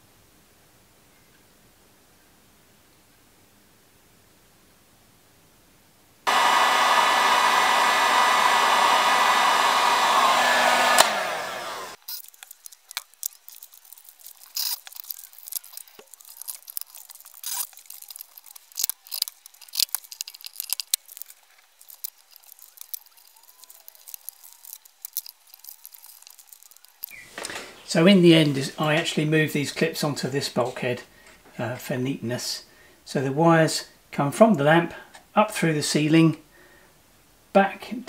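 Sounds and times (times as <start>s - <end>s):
heat gun blowing: 6.3s - 12.4s.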